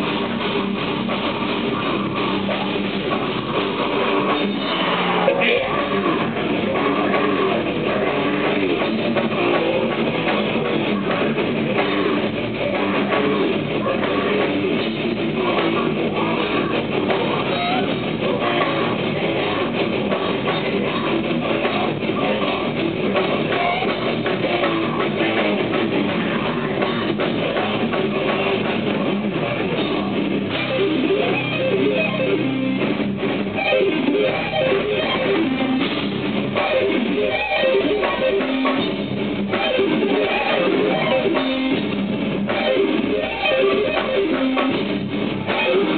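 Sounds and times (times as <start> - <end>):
bass guitar: 0.0 - 45.9
distorted electric guitars: 0.0 - 45.9
drum kit: 0.0 - 45.9.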